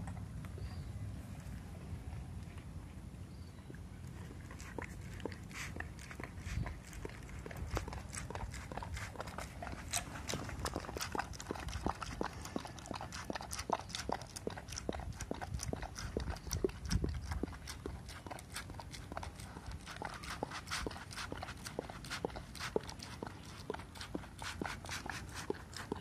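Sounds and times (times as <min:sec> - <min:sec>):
dog licking plastic tray: 0:04.3 - 0:26.0.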